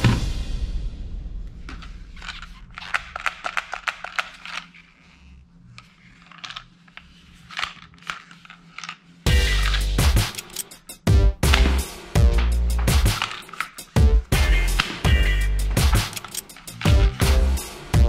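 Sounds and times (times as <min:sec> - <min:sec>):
plastic toy gun clicking: 0:02.2 - 0:04.7, 0:06.2 - 0:10.8, 0:12.8 - 0:14.0, 0:14.7 - 0:15.1, 0:15.8 - 0:17.2
loud music: 0:09.3 - 0:10.4, 0:11.0 - 0:18.0.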